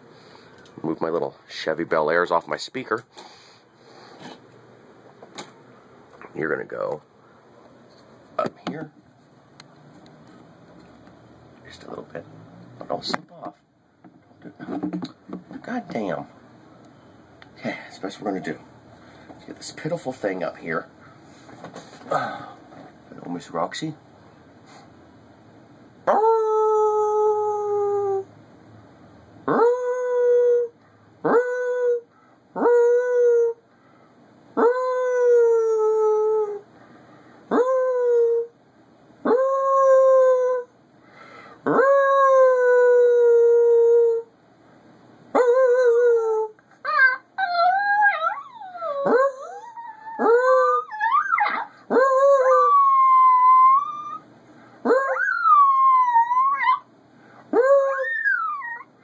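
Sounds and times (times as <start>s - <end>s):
dog howling: 26.1s - 28.3s, 39.2s - 40.7s, 41.6s - 44.3s, 45.3s - 54.2s, 54.8s - 56.9s, 57.5s - 58.9s
dog yipping: 46.8s - 54.2s, 54.9s - 56.9s, 57.6s - 58.9s.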